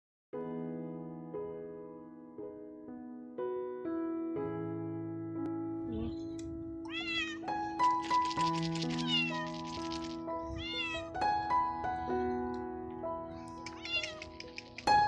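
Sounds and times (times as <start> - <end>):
background music: 4.4 - 15.0
cat meowing: 6.0 - 7.6, 8.9 - 9.6, 10.4 - 11.2, 13.6 - 14.8.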